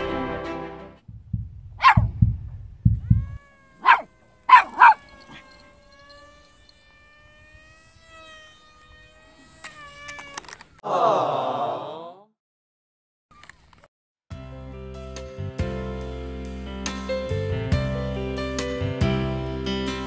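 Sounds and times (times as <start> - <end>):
low drum beats: 1.1 - 3.2
dog-like yips: 1.8 - 2.2, 2.9 - 10.4.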